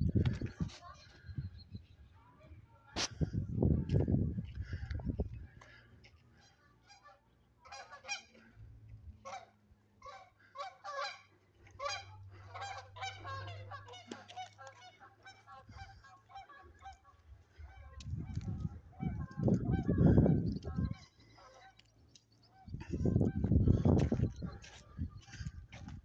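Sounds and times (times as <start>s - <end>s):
flock of birds calling: 9.2s - 26.0s.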